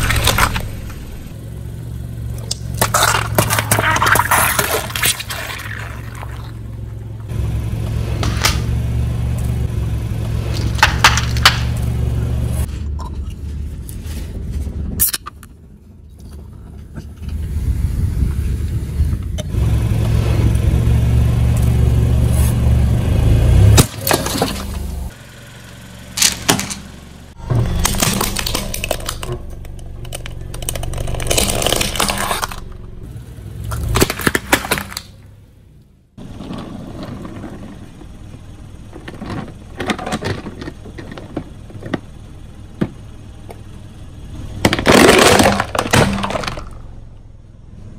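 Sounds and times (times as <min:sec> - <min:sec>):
car engine running low: 0:00.0 - 0:47.9
tyre crushing brittle objects: 0:02.4 - 0:06.6, 0:23.8 - 0:25.0, 0:27.6 - 0:32.7, 0:33.7 - 0:35.2, 0:44.6 - 0:46.9.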